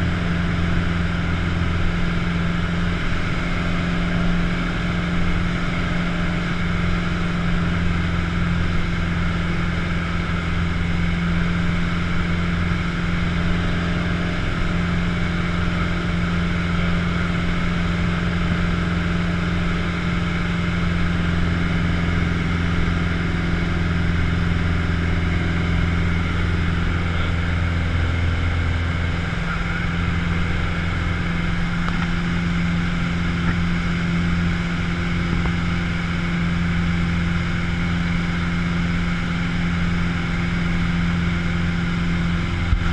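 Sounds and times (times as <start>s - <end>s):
propeller plane engine droning: 0.0s - 42.9s.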